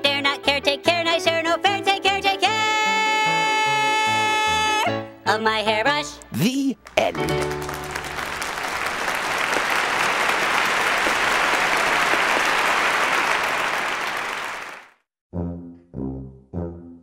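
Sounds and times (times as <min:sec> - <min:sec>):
applause: 0:06.8 - 0:15.1
low brass-like music notes: 0:15.4 - 0:17.0.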